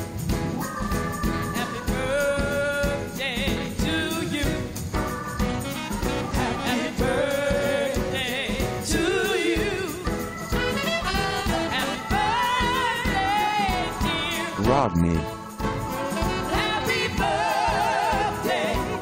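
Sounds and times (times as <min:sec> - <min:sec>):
live band music: 0:00.0 - 0:18.7
woman singing: 0:01.2 - 0:04.8, 0:05.9 - 0:14.6, 0:16.2 - 0:19.0.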